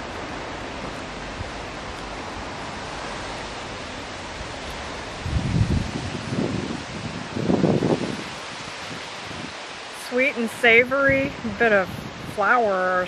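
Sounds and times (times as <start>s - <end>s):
breeze through trees: 0.0s - 13.0s
wind buffeting microphone: 0.0s - 13.0s.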